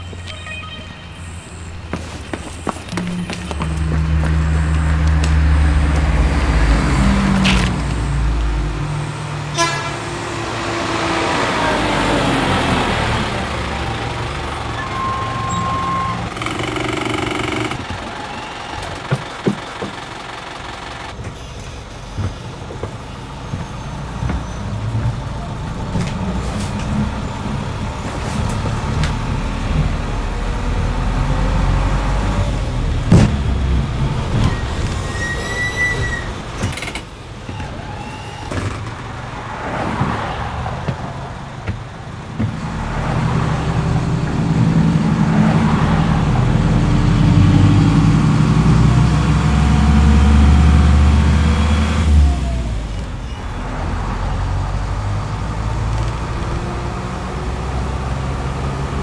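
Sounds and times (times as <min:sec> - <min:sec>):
bus horn toot: 0:00.0 - 0:02.1, 0:09.5 - 0:10.4
bus engine running: 0:00.0 - 0:59.0.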